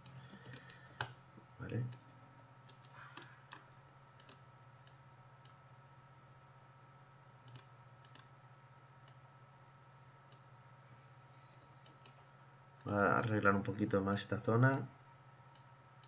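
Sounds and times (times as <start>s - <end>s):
computer mouse clicks: 0.0s - 1.2s, 2.7s - 3.6s, 4.2s - 5.6s, 7.4s - 8.3s
low steady hum: 0.0s - 16.0s.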